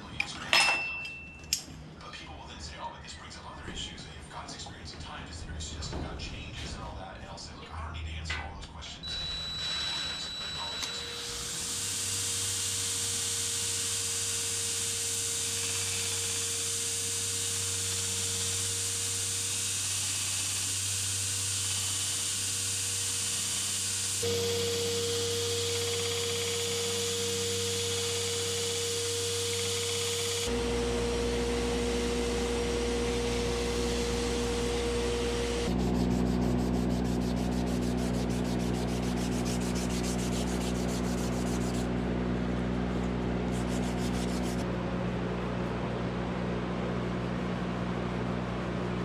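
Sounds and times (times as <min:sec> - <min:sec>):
steady machine hum: 0:00.0 - 0:49.0
belt grinder sanding: 0:11.5 - 0:41.9, 0:43.5 - 0:44.6
hand sanding with abrasive paper: 0:35.7 - 0:41.9, 0:43.5 - 0:44.6.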